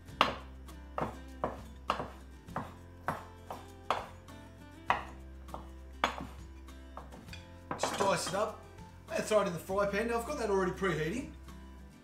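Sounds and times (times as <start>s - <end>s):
quiet background music: 0.0s - 12.0s
knife chopping on wooden board: 0.1s - 4.2s, 4.9s - 6.4s, 7.0s - 8.4s.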